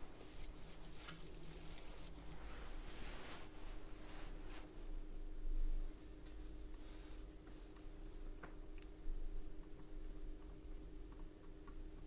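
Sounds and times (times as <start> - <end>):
low electrical hum: 0.0 - 12.0
light ticks of small tools: 7.7 - 9.0.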